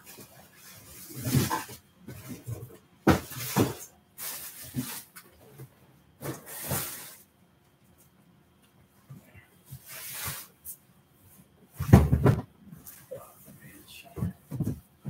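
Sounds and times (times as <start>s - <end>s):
rustling and knocking: 11.8s - 12.9s, 14.1s - 15.0s.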